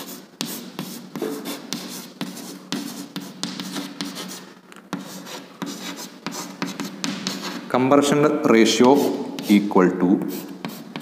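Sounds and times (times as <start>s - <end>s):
chalk scratching on blackboard: 0.0s - 7.8s, 8.6s - 11.0s.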